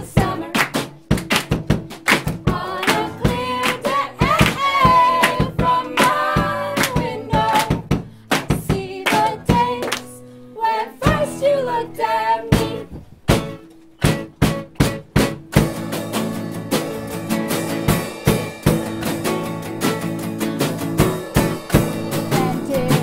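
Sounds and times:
live band playing: 0:00.0 - 0:08.2, 0:12.5 - 0:23.0
sharp percussive hits: 0:00.0 - 0:09.3, 0:13.3 - 0:23.0.

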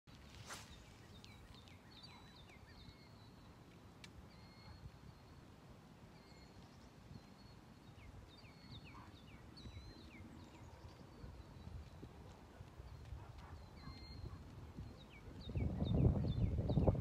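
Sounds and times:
faint birds chirping: 0:00.1 - 0:17.0
wind rumble on microphone: 0:08.0 - 0:17.0.

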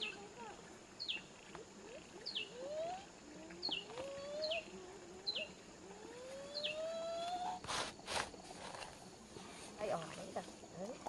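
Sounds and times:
bird calling sharp notes: 0:06.4 - 0:07.6.

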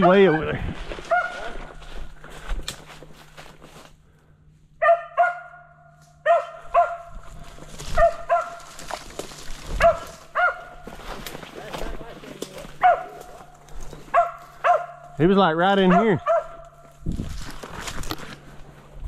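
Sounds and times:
dog barking: 0:00.0 - 0:00.5, 0:01.1 - 0:01.6, 0:04.8 - 0:07.3, 0:07.9 - 0:08.7, 0:09.7 - 0:10.9, 0:12.8 - 0:13.4, 0:14.1 - 0:15.2, 0:15.8 - 0:16.7
footsteps in dry leaves: 0:00.0 - 0:04.6, 0:05.8 - 0:15.2, 0:16.2 - 0:19.0.

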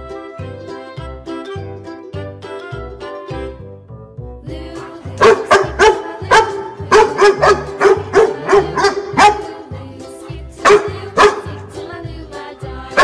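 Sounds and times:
children's background music: 0:00.0 - 0:13.0
short dog barks: 0:10.7 - 0:11.4.

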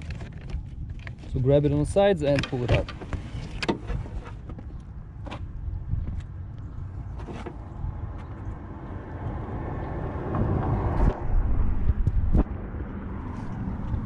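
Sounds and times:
rustling and scraping: 0:00.0 - 0:06.3, 0:07.0 - 0:08.4
steady low rumble: 0:04.7 - 0:14.0.

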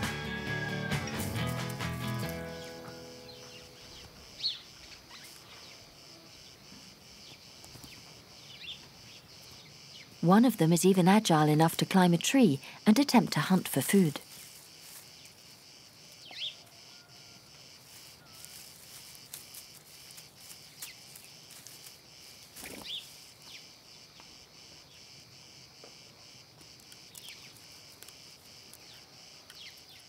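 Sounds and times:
crickets chirping: 0:00.2 - 0:30.0
bird chirps: 0:02.0 - 0:10.3, 0:15.1 - 0:19.0, 0:22.2 - 0:25.2, 0:26.9 - 0:30.0.

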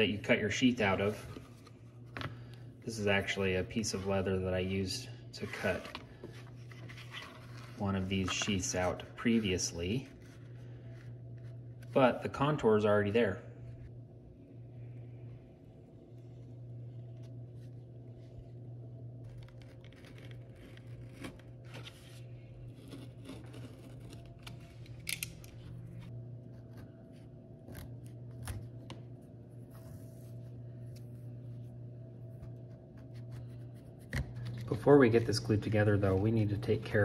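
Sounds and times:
steady low hum: 0:00.0 - 0:37.0
knife cutting leather: 0:22.8 - 0:24.6.

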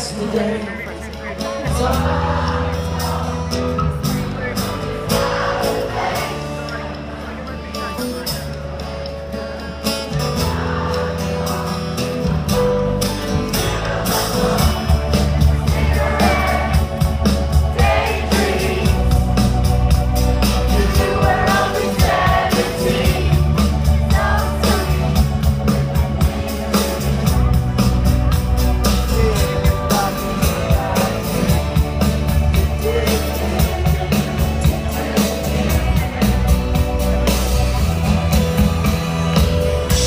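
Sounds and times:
live rock band playing: 0:00.0 - 0:40.0
person singing: 0:20.7 - 0:25.5, 0:28.9 - 0:36.7.

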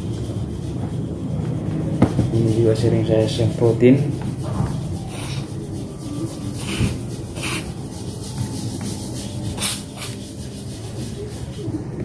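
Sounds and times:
handling and rubbing noise: 0:00.0 - 0:12.0
aerosol spray hissing: 0:06.2 - 0:10.4.

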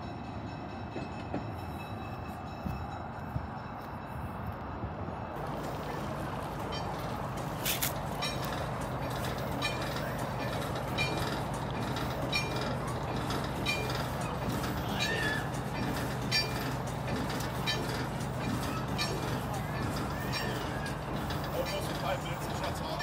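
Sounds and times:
crossing signal bell dinging: 0:05.6 - 0:23.0.

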